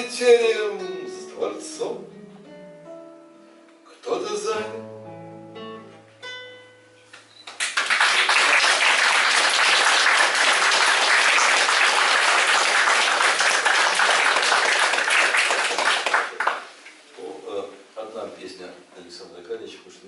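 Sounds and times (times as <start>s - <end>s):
audience applause: 7.6s - 16.7s.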